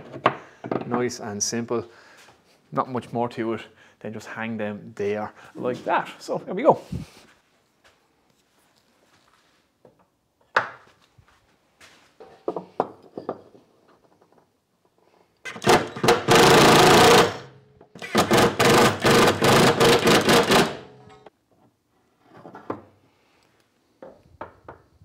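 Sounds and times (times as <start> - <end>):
cordless drill driving screw: 15.5 - 20.8.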